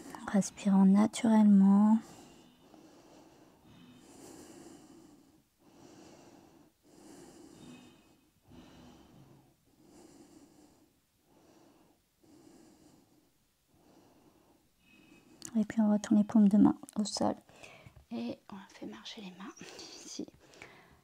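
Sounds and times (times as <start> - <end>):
woman breathing softly: 1.9 - 15.4, 17.4 - 18.1, 19.3 - 21.0.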